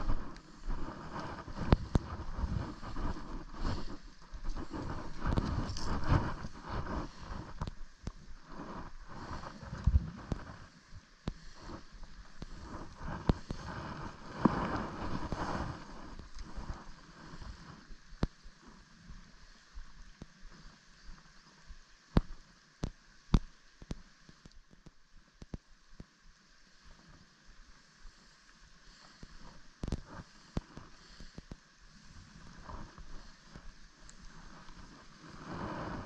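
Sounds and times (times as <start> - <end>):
wind gusting on microphone: 0.0 - 7.8, 12.4 - 16.9.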